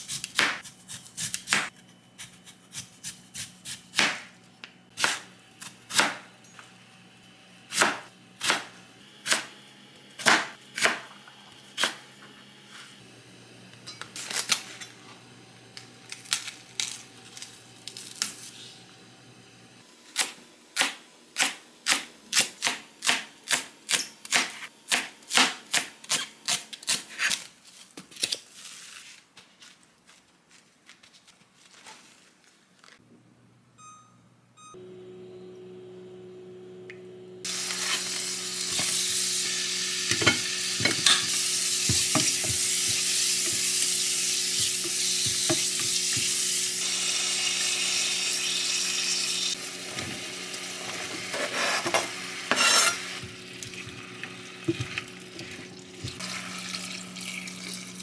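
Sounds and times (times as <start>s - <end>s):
knife chopping on cutting board: 7.7s - 9.5s, 10.2s - 11.1s, 41.8s - 43.7s.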